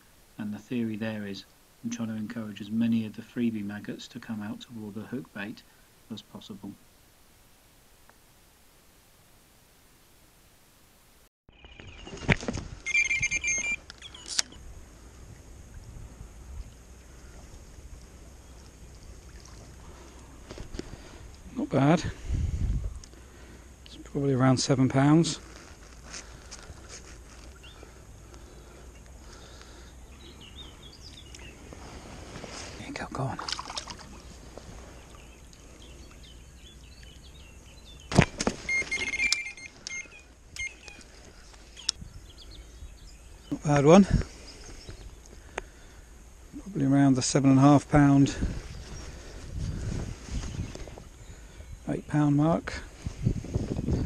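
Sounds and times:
electronic bite alarm tone: 0:12.8 - 0:14.6, 0:38.6 - 0:41.0
faint bird chirps: 0:12.9 - 0:14.6, 0:34.1 - 0:43.7
wind rumble on microphone: 0:14.7 - 0:19.9, 0:22.0 - 0:23.1, 0:42.0 - 0:43.4, 0:48.2 - 0:51.8, 0:52.9 - 0:54.0
lapping water: 0:16.5 - 0:21.4, 0:33.0 - 0:36.3.

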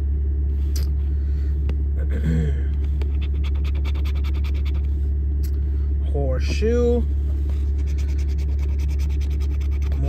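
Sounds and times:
steady low hum: 0:00.0 - 0:10.0
coin scratching lottery ticket: 0:03.1 - 0:04.9, 0:07.7 - 0:10.0.

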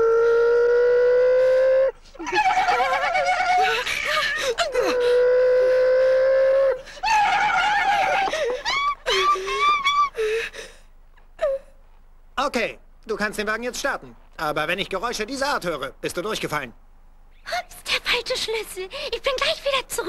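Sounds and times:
woman screaming: 0:00.0 - 0:10.2.

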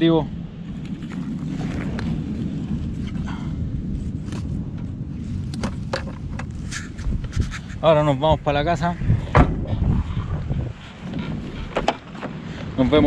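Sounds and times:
camera handling rumble: 0:04.0 - 0:07.8
camera scraping against fabric: 0:06.4 - 0:08.0.

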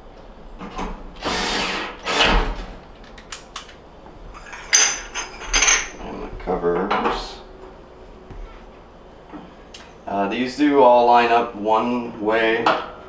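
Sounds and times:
cordless drill whirring: 0:01.2 - 0:02.5.

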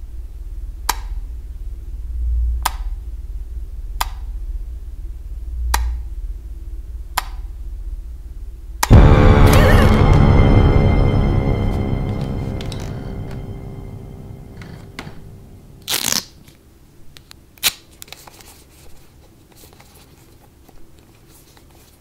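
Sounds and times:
loud horror film music: 0:08.8 - 0:16.2
low rumbling drone: 0:08.9 - 0:16.2.

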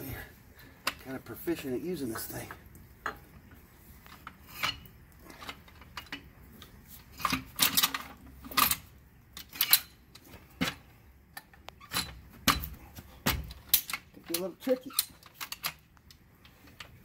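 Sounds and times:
metal clicks and clanks: 0:04.0 - 0:17.0.

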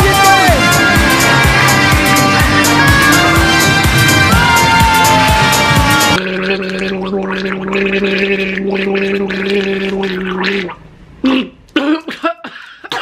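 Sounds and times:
man gargling water: 0:06.2 - 0:11.5
man spluttering water: 0:06.2 - 0:11.5.

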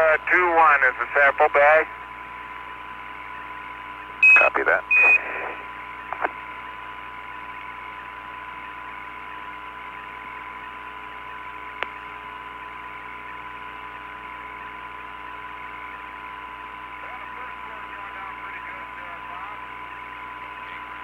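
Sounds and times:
faint steady hum: 0:00.0 - 0:21.0
radio static hiss: 0:00.0 - 0:21.0
radio crackling click: 0:05.0 - 0:06.4.

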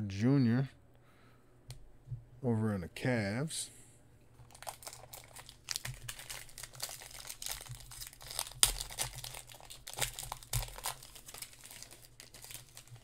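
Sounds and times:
foil wrapper crinkling and tearing: 0:04.4 - 0:13.0.

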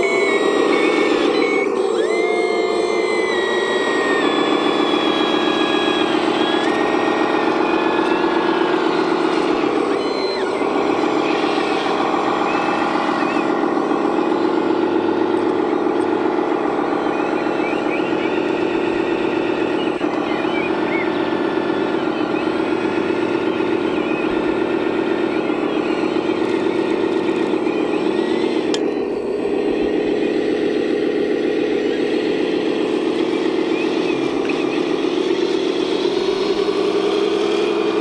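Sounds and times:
model truck engine drone: 0:00.0 - 0:38.0.

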